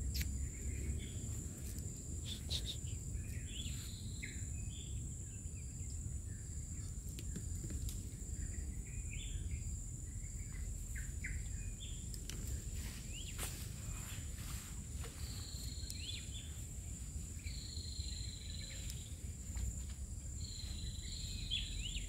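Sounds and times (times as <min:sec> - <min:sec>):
high insect drone: 0:00.0 - 0:22.0
bird chirps: 0:02.2 - 0:07.5, 0:08.1 - 0:14.1, 0:15.0 - 0:16.6, 0:17.4 - 0:19.2, 0:20.3 - 0:22.0.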